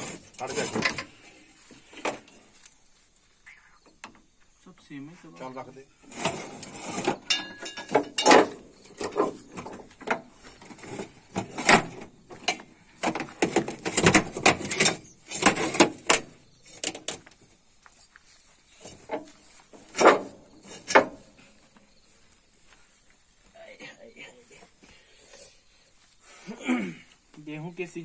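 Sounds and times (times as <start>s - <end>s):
metal chain clanking and rattling: 0.0s - 1.2s, 6.1s - 17.2s, 18.8s - 21.5s.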